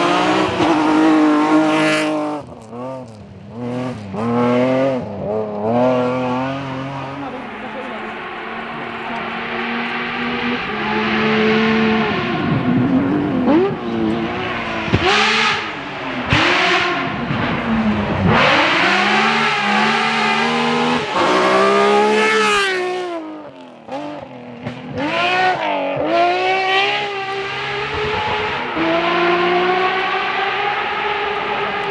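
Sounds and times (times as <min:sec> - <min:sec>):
rally car engines revving: 0:00.0 - 0:31.9.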